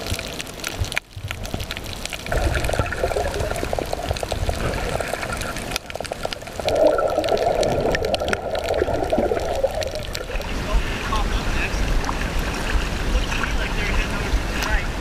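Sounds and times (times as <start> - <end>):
crackle of small clicks: 0.0 - 10.5
muffled underwater sloshing and bubbling: 0.0 - 15.0.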